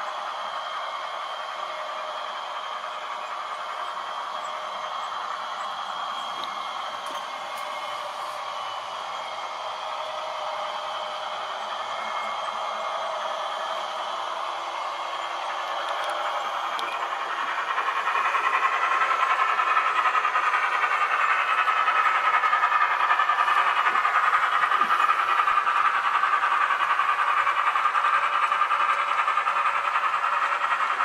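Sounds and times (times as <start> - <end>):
model train whirring rattle: 0.0 - 31.0.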